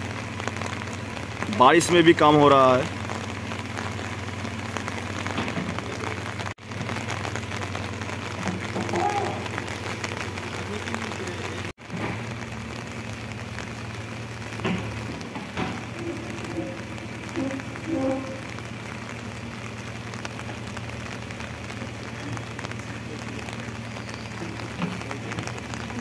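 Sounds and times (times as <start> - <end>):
diesel engine humming: 0.0 - 26.0
steady rain: 0.0 - 26.0
sharp knocks: 14.6 - 18.5.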